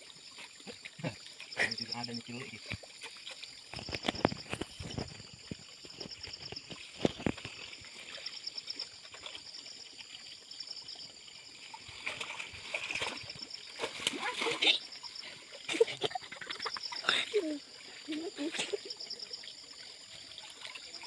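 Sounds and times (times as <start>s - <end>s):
water sloshing around wading person: 0.0s - 21.0s
sharp water splashes: 11.4s - 19.0s.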